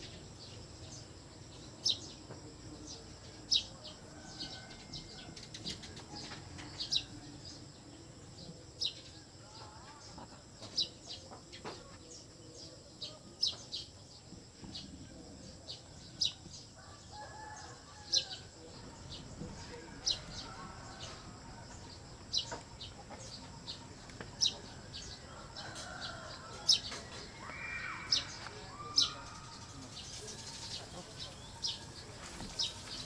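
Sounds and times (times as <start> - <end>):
wavering bird calls: 19.6 - 33.0.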